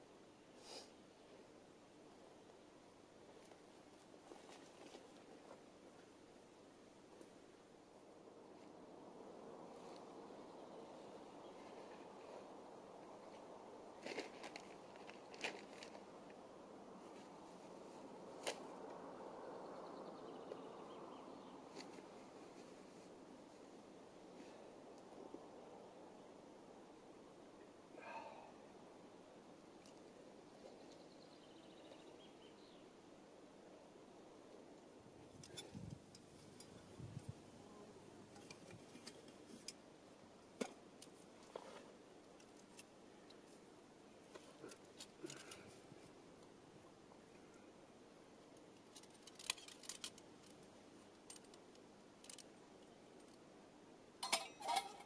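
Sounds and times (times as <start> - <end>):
faint outdoor hiss: 0.0 - 55.0
camping gear clicks and knocks: 38.3 - 43.6, 44.2 - 46.1, 48.5 - 53.4, 54.2 - 55.0.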